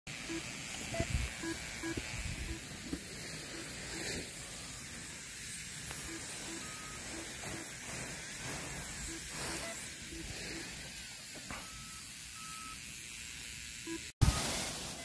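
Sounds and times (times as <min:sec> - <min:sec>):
outdoor hiss: 0:00.1 - 0:15.0
short beeps: 0:00.3 - 0:02.7, 0:06.0 - 0:07.6, 0:09.0 - 0:10.7, 0:11.5 - 0:12.8.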